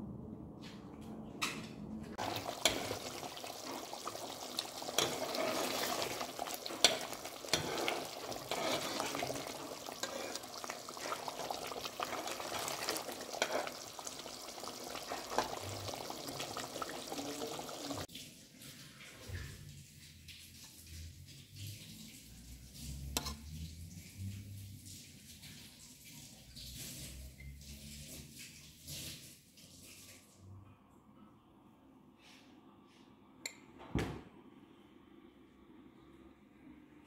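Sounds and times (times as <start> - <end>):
stew bubbling in a pot: 2.2 - 18.1.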